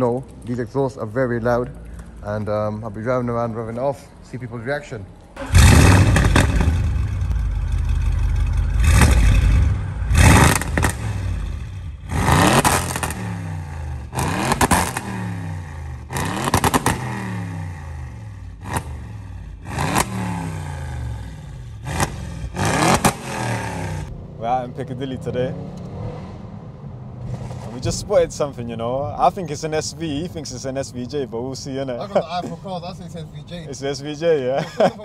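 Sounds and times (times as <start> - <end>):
car engine revving with exhaust pops: 5.2 - 30.5.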